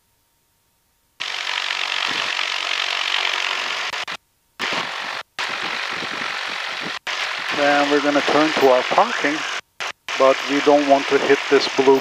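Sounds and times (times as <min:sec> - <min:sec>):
cabin and engine noise hiss: 0:00.0 - 0:12.0.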